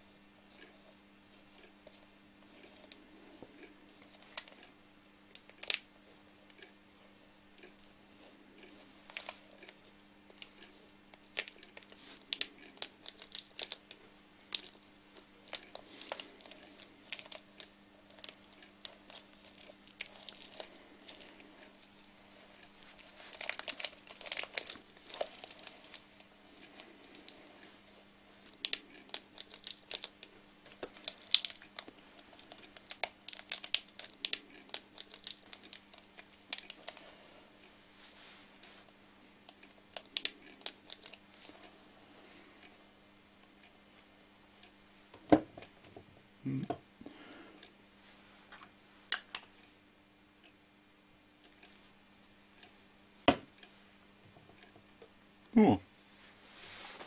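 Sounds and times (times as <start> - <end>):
faint low hum: 0.0 - 57.0
crinkling and crackling clicks: 0.5 - 42.8.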